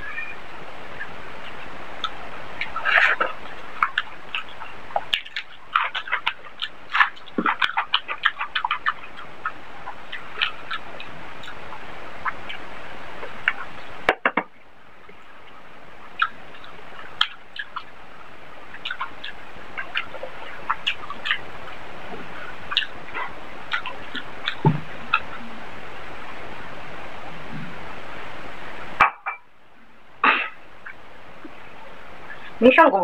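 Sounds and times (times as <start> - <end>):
steady hiss: 0.0 - 33.0
wet chewing and lip smacks: 1.4 - 14.1, 15.0 - 25.4.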